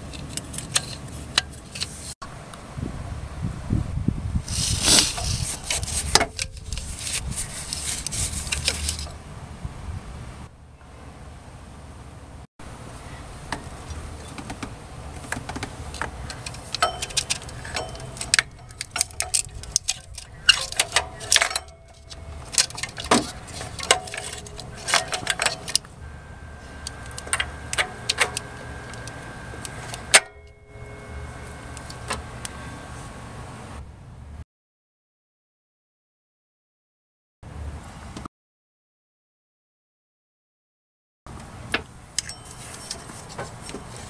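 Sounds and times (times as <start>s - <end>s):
metal clinking and scraping: 4.5s - 9.2s, 15.8s - 33.3s, 42.2s - 44.0s
steady low rumble: 5.1s - 34.4s.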